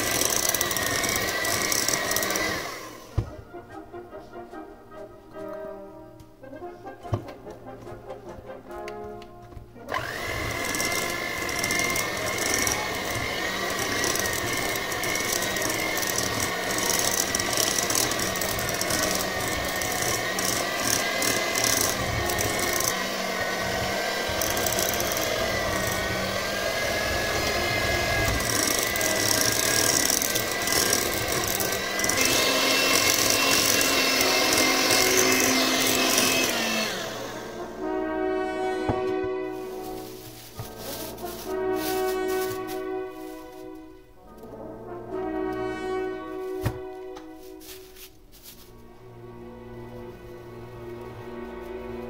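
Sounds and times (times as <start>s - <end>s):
electric hand mixer whine: 0.0s - 3.4s, 9.9s - 38.0s, 38.8s - 43.6s.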